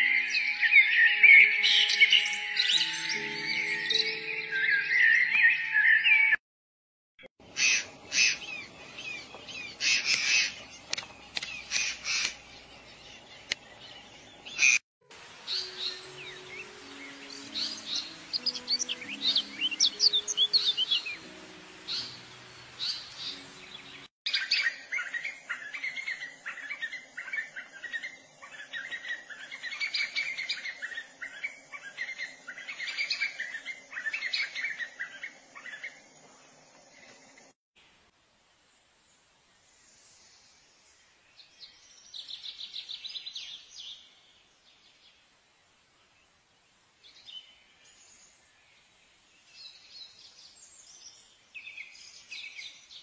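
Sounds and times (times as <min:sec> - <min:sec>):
birds chirping and calling: 0:00.0 - 0:06.4, 0:07.4 - 0:14.8, 0:15.4 - 0:37.4
soft low music notes: 0:15.2 - 0:24.1.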